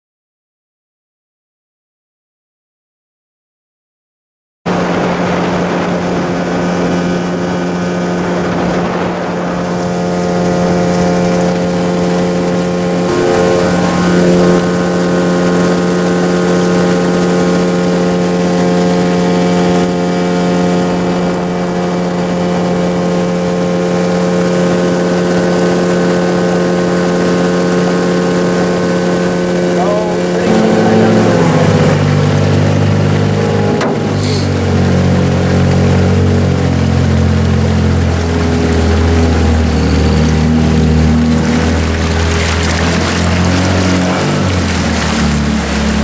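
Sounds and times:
wind noise: 4.7s - 27.6s
motorboat engine hum: 4.7s - 46.0s
water noise: 4.7s - 46.0s.

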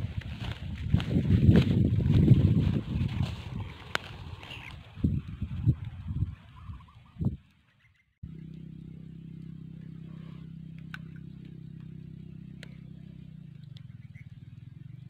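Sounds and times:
low engine hum: 0.0s - 6.3s, 8.2s - 15.0s
faint clicks: 12.5s - 12.8s.

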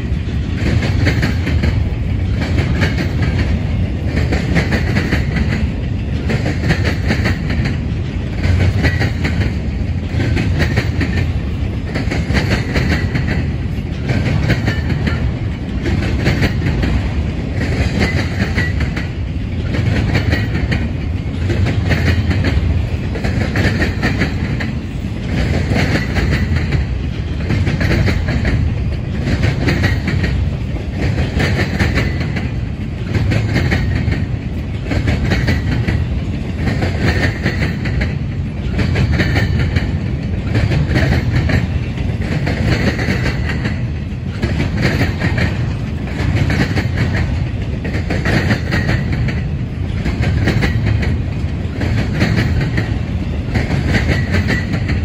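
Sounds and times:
freight train wheels rumbling on rails: 0.0s - 55.0s.

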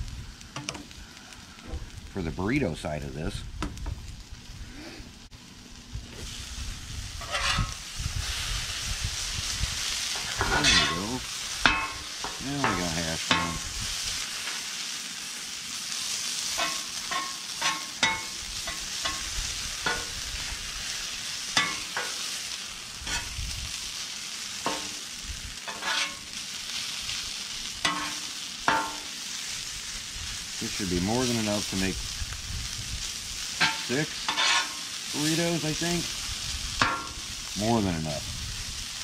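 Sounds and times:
food sizzling on a griddle: 0.0s - 39.0s
metal spatula scraping steel plate: 7.2s - 7.8s, 10.3s - 11.1s, 25.7s - 26.2s, 33.6s - 34.8s.

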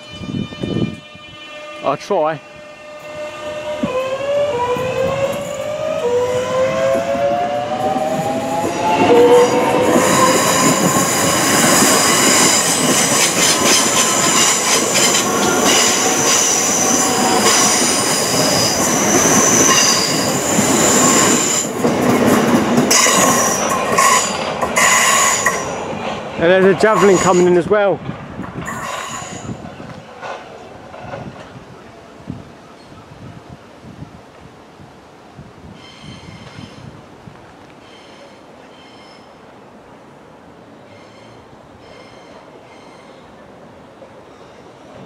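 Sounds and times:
wheel and rail rush: 0.0s - 45.0s
electric train traction whine: 2.4s - 27.6s
wheels clicking over rail joints: 7.8s - 27.4s
high wheel squeal: 8.1s - 21.7s, 22.9s - 25.8s, 26.8s - 27.6s, 28.7s - 29.6s, 37.8s - 39.4s, 40.9s - 43.2s.

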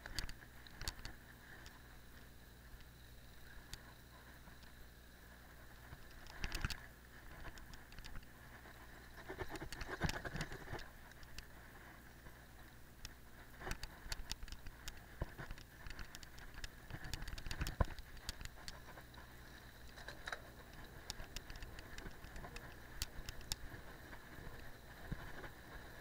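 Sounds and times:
bike rattling clicks and knocks: 9.2s - 11.4s, 13.6s - 19.2s, 19.8s - 23.7s.

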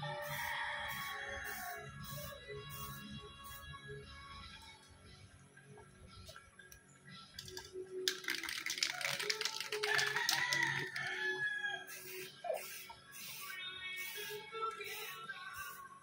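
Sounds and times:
rooster crowing: 0.0s - 1.9s, 9.8s - 12.1s
background music: 0.0s - 16.0s.

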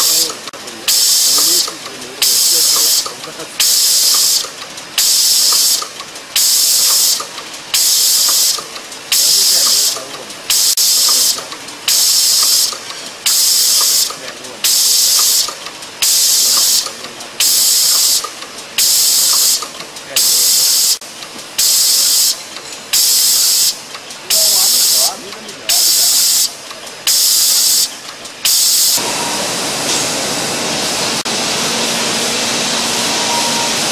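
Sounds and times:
compressed air hiss: 0.0s - 19.6s, 20.2s - 21.0s, 21.6s - 25.1s, 25.7s - 29.1s
steady machine noise: 0.0s - 33.9s
faint mechanical ticks: 0.2s - 2.2s, 2.8s - 14.6s, 15.2s - 16.0s, 17.9s - 20.2s, 21.0s - 21.6s, 22.4s - 22.8s, 23.8s - 24.2s, 25.0s - 25.7s, 26.4s - 27.1s.

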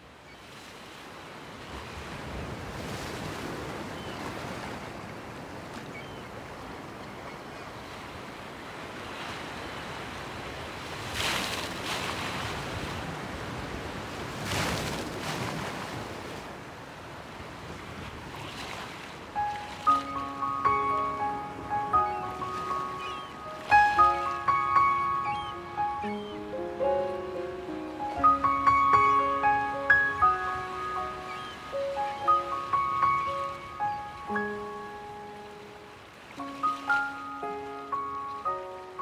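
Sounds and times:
ocean waves washing in: 0.6s - 39.0s.

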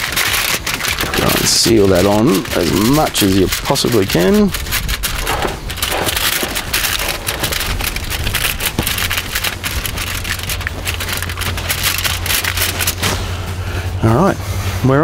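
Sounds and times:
aluminium foil crinkling: 0.0s - 13.4s.

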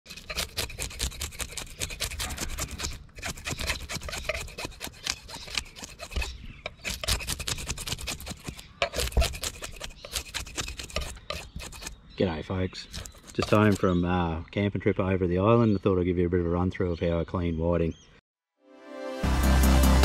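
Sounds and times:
knife scraping fish scales: 0.1s - 12.0s, 12.8s - 13.9s.

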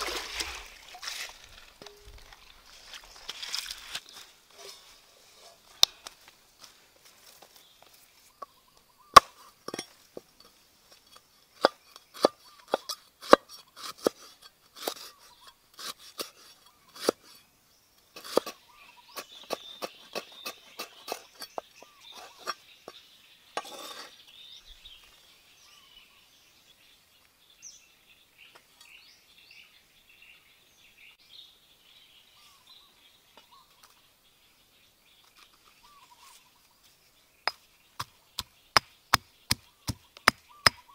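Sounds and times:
faint bird chirps: 7.5s - 9.8s, 16.6s - 40.9s.

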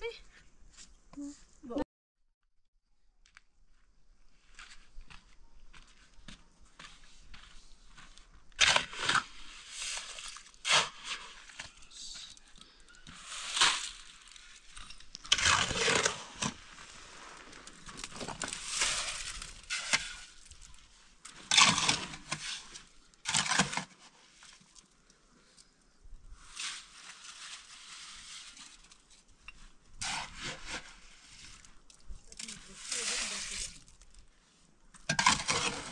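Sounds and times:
shovel scraping wet mortar: 8.5s - 11.9s, 13.0s - 24.7s, 26.4s - 29.2s, 29.9s - 34.1s, 35.0s - 35.9s.

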